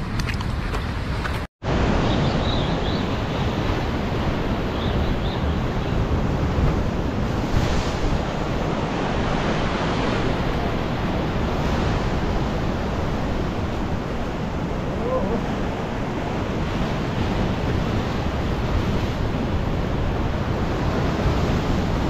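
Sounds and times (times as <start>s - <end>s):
wind rumbling on microphone: 0.0s - 22.0s.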